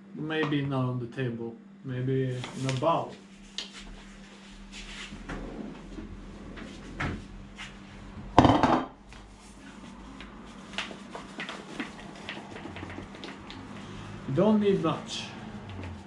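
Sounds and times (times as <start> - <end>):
plastic bowl set down on table: 8.4 - 8.9.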